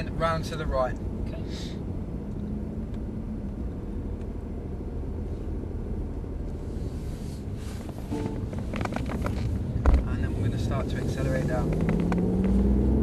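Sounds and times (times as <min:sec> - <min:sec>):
car road and tyre noise: 0:00.0 - 0:13.0.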